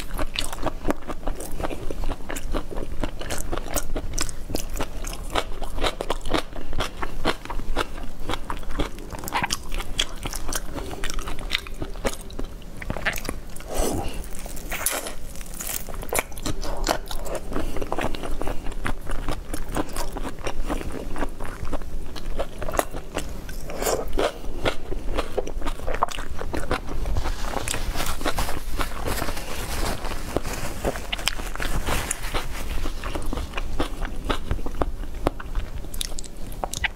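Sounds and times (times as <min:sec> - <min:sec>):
wet mouth chewing sounds: 0:00.0 - 0:29.1, 0:30.9 - 0:36.9
shrimp shell crunching: 0:04.6 - 0:18.4.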